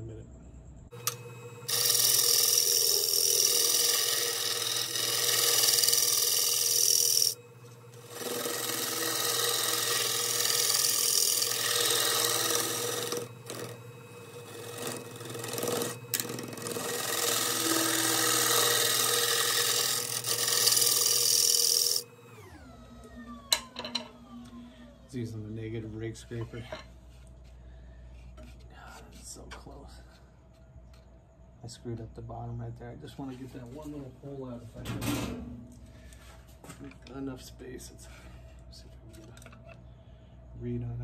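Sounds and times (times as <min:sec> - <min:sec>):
lathe winding down whine: 0:00.9 - 0:25.5
lathe humming: 0:00.9 - 0:26.8.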